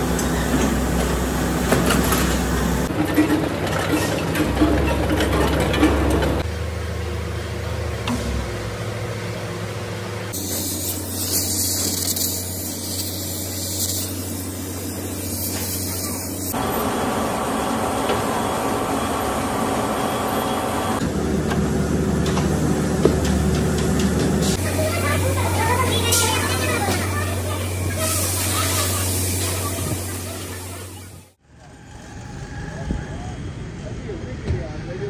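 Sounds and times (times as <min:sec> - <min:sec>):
loud hiss: 0:10.4 - 0:16.5
machinery low hum: 0:14.3 - 0:35.0.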